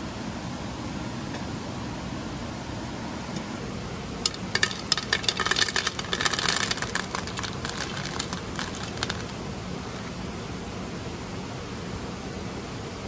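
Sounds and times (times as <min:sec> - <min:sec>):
cereal pattering into metal pan: 0:04.3 - 0:09.4.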